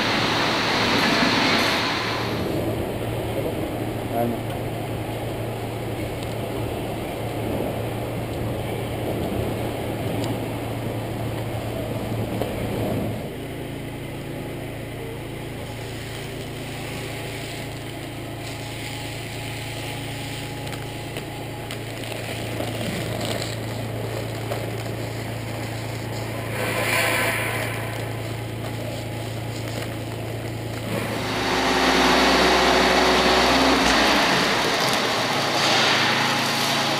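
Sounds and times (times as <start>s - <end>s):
low mechanical hum: 0.0s - 36.9s
rough rumbling noise: 22.0s - 36.9s.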